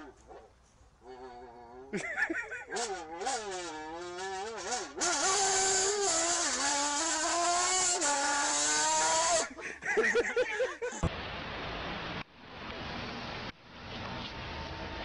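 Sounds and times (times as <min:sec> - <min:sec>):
man laughing: 0:01.9 - 0:02.9, 0:09.5 - 0:11.0
street noise hiss: 0:04.6 - 0:15.0.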